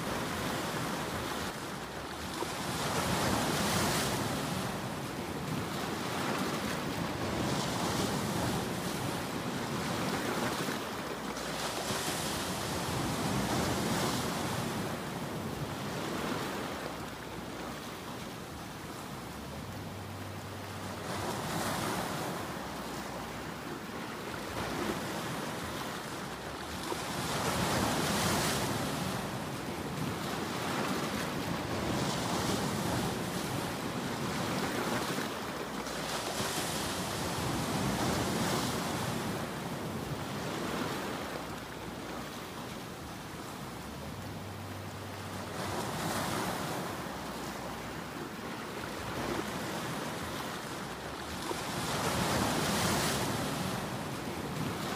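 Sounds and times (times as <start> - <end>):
waves breaking on rocks: 21.0 - 41.4, 45.4 - 54.9.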